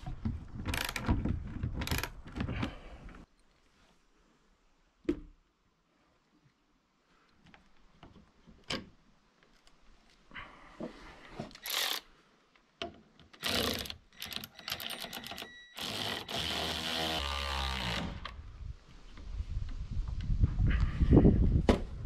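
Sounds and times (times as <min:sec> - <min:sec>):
cordless drill motor: 0:11.6 - 0:12.0, 0:13.4 - 0:18.4.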